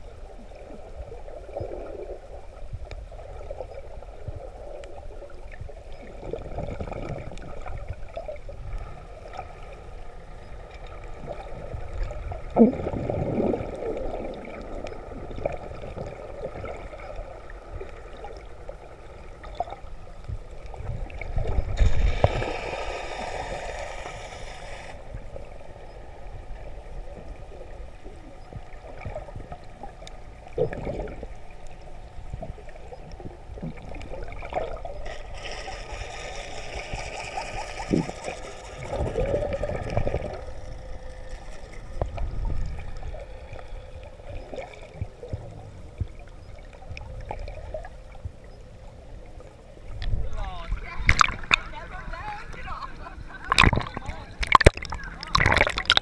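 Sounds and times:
muffled underwater water sloshing: 0:00.0 - 0:56.0
crackles: 0:00.6 - 0:52.6, 0:53.4 - 0:56.0
water splashing: 0:20.7 - 0:25.2, 0:33.5 - 0:45.4, 0:50.2 - 0:56.0.

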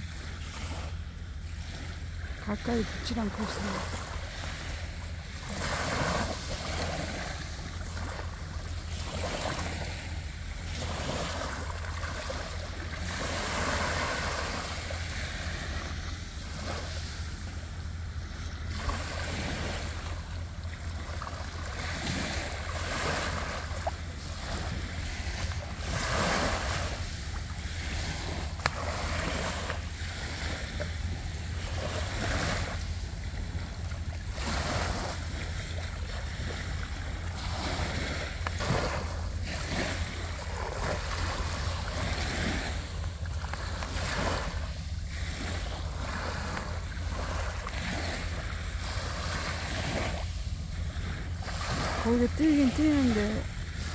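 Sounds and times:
small waves breaking on shore: 0:00.0 - 0:53.9
wind rumble on microphone: 0:00.0 - 0:53.9.

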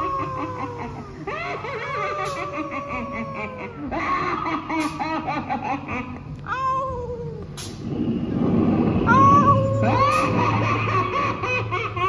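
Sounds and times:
wavering falling moans: 0:00.0 - 0:04.4, 0:06.4 - 0:12.0
eerie cackling laughter: 0:00.0 - 0:06.6, 0:08.7 - 0:12.0.

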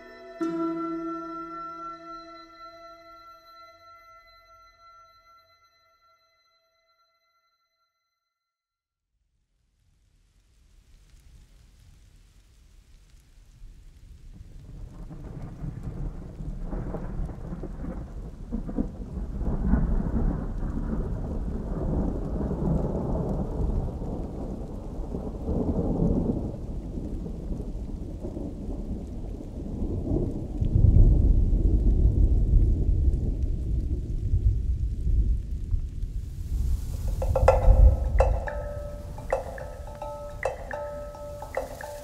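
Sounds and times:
steady rain: 0:09.8 - 0:42.0
rolling thunder: 0:14.3 - 0:42.0.

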